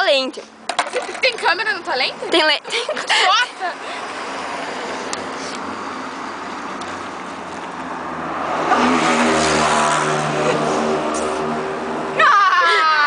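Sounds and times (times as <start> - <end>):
hiss of passing cars: 3.1 - 12.1
vehicle engine passing close: 4.0 - 12.2.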